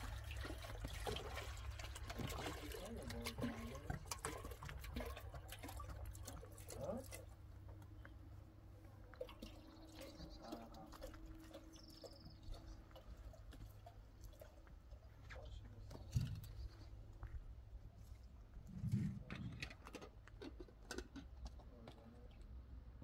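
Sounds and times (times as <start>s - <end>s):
water pouring into kettle: 0.0s - 6.7s.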